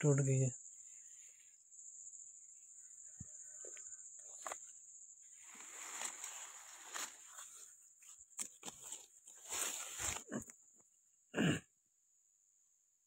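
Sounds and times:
high-pitched insect drone: 0.0 - 7.6
leaves and branches rustling: 4.4 - 10.4.

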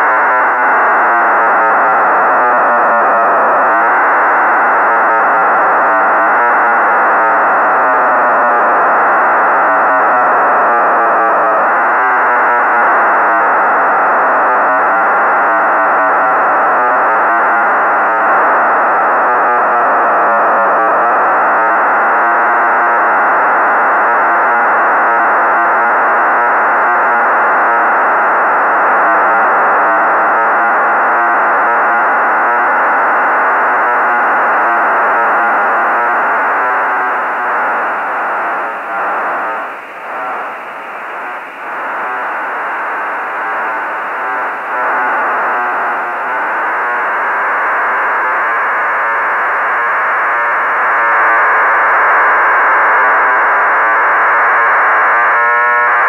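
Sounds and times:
buzzing data signal: 28.6 - 50.8.

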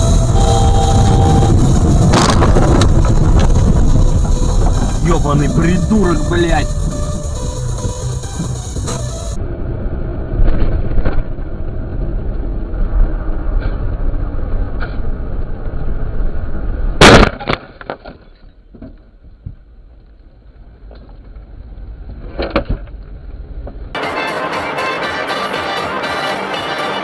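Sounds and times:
loud vehicle crash: 0.0 - 15.4
car road and engine rumble: 0.0 - 27.0.

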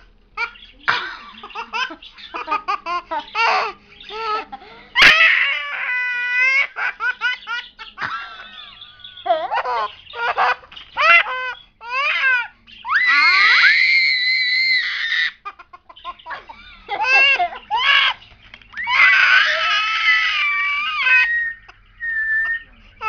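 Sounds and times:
baby giggling: 0.4 - 4.7, 5.8 - 12.5, 14.8 - 18.2
baby screaming high-pitched: 5.0 - 6.8, 9.4 - 15.5, 18.8 - 21.6.

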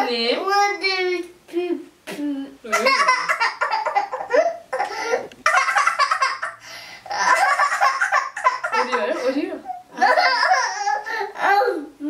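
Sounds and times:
girl laughing: 2.6 - 11.2.

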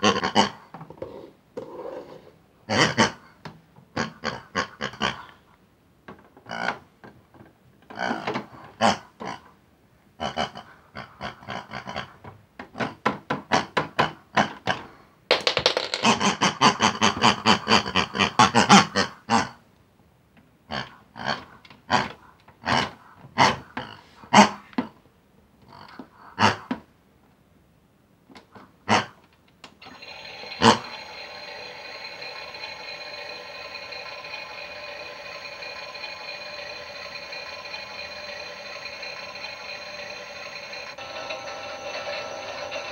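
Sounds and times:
pig-like grunts and oinks: 0.0 - 0.7, 2.7 - 5.4, 6.4 - 6.8, 7.9 - 9.6, 10.2 - 15.0, 16.0 - 19.6, 20.7 - 24.7, 25.6 - 26.8, 28.6 - 29.2
toy washing machine whirring: 15.3 - 18.0, 29.8 - 42.9.

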